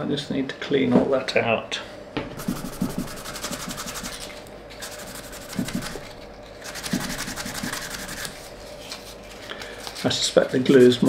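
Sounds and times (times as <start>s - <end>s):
abrasive paper rubbing metal: 2.4s - 11.0s.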